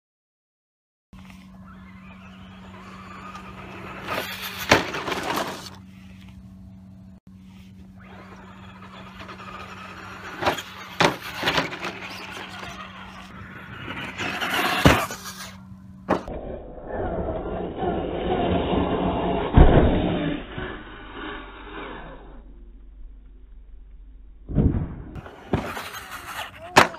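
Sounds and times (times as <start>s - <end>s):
toy truck motor whirring: 1.2s - 6.4s, 7.8s - 16.3s, 16.9s - 22.4s, 25.2s - 26.9s
chassis thumping on landing: 1.7s - 5.8s, 8.0s - 16.4s, 24.4s - 26.9s
toy truck hitting ramp: 2.2s - 5.8s, 8.0s - 16.4s, 19.0s - 20.7s, 24.5s - 26.9s.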